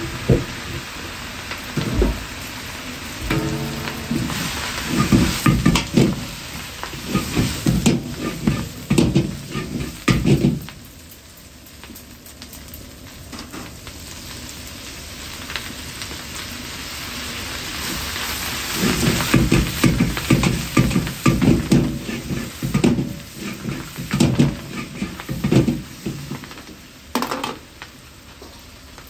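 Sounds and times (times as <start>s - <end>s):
onions sizzling in hot oil: 0.0s - 29.0s
metal ladle scraping wok: 3.2s - 6.4s, 7.0s - 10.4s, 18.7s - 26.4s.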